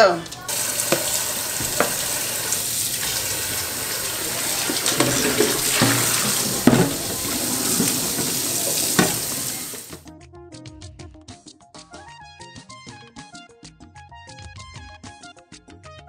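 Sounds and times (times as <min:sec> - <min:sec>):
pot knocking in sink: 0:00.5 - 0:10.0
sponge scrubbing pot: 0:00.5 - 0:10.0
tap running into metal sink: 0:00.5 - 0:10.0.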